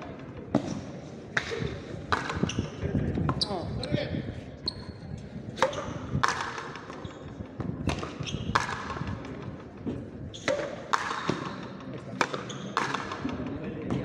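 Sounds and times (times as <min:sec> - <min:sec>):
ball struck by racket: 0:00.4 - 0:03.4, 0:05.6 - 0:14.0
ball smacking against wall: 0:07.9 - 0:09.1, 0:10.5 - 0:11.6.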